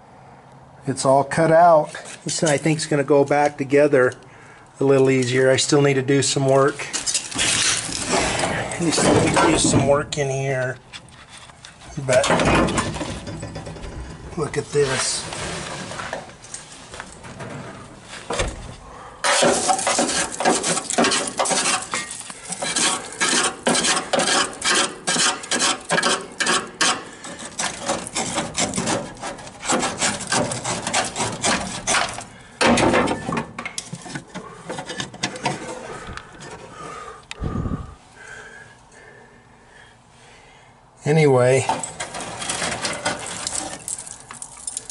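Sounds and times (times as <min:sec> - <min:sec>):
hand tool scraping rusted steel: 0:06.4 - 0:18.4, 0:19.2 - 0:37.0, 0:41.5 - 0:44.9.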